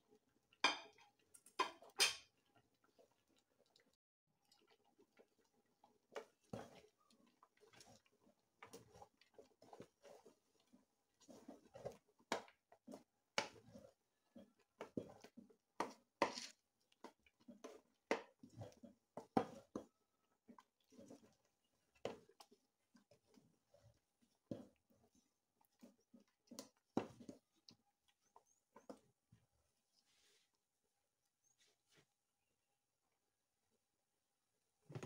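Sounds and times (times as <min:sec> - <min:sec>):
wooden stirrer scraping metal pot: 0:06.0 - 0:29.2.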